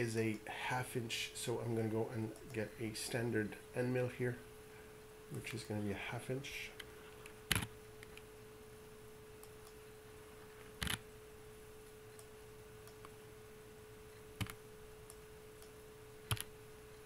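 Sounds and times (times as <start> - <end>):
faint steady hum: 0.0 - 17.0
computer mouse clicks: 10.8 - 11.0, 14.4 - 16.5.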